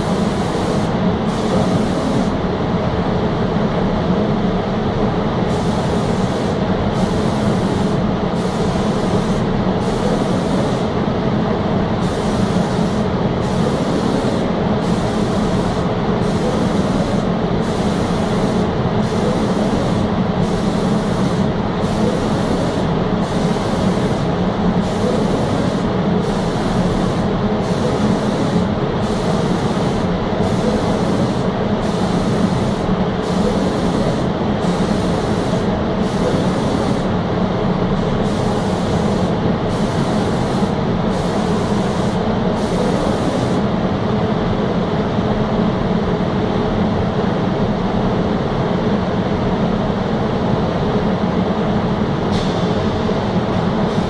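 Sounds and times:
spray gun hissing: 0.0s - 2.3s, 5.5s - 10.9s, 12.0s - 37.1s, 38.2s - 43.6s
machinery hum: 0.0s - 54.0s.

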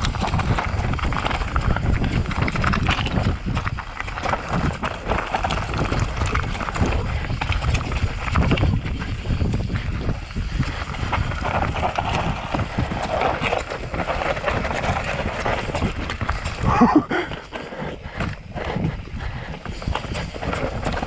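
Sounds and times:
bike rattling over bumps: 0.0s - 21.0s
tyres crunching over stones: 0.0s - 21.0s.

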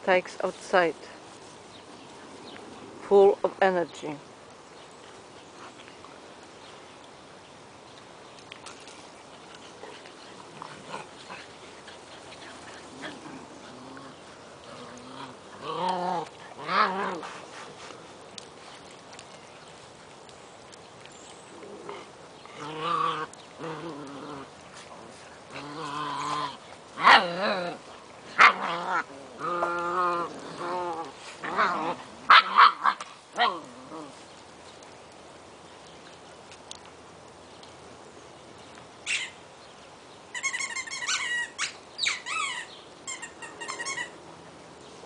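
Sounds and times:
puppies yipping and whining: 39.1s - 39.4s, 40.3s - 44.2s.

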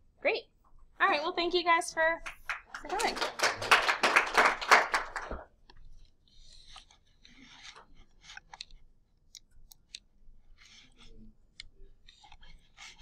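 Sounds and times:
faint rustling and scraping: 5.5s - 8.9s.

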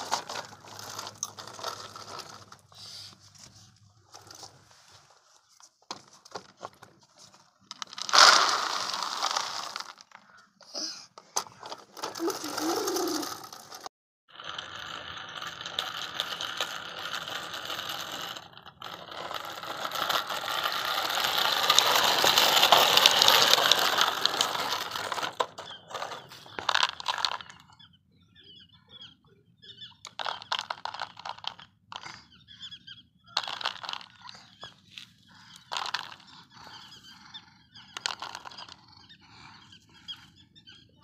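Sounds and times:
toy wheels rattling on pellets: 0.0s - 4.6s, 7.7s - 27.8s, 30.0s - 40.8s.

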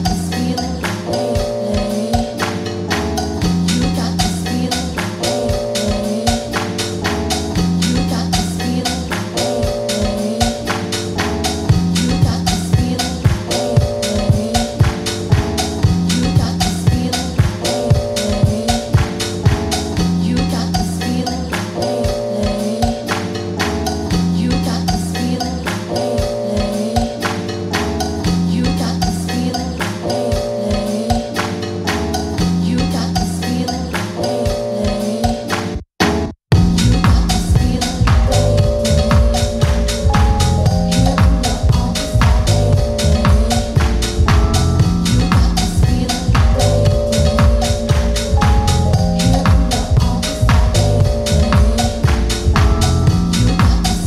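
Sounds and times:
lo-fi house music: 0.0s - 23.2s, 36.5s - 54.0s.

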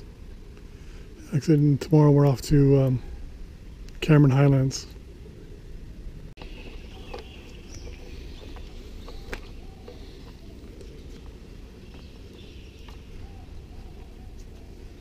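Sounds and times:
birds chirping: 0.0s - 15.0s
low background rumble: 0.0s - 15.0s.

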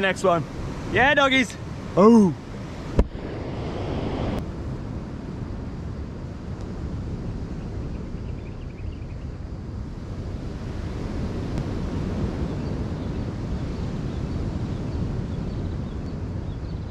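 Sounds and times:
surf on rocky shore: 0.0s - 4.8s
wind buffeting microphone: 0.0s - 16.9s.

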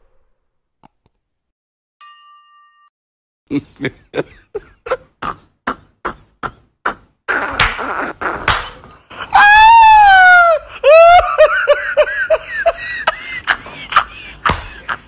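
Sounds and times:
bell-like notification ding: 2.0s - 2.9s.

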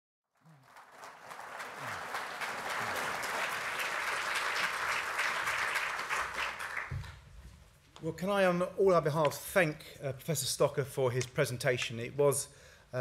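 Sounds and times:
audience applauding: 0.4s - 7.2s.

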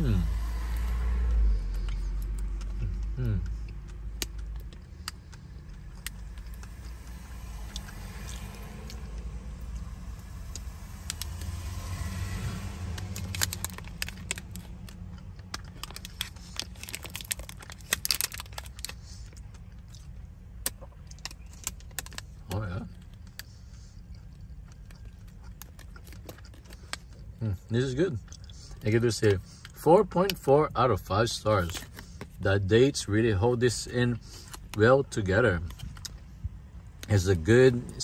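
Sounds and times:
car interior hum: 0.0s - 38.0s
chewing: 1.3s - 9.2s, 12.9s - 29.8s
foil wrapper crinkling: 12.9s - 19.4s.

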